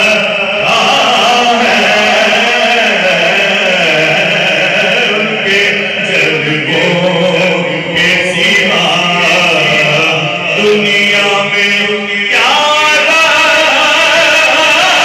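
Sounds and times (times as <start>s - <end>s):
men chanting: 0.0s - 15.0s.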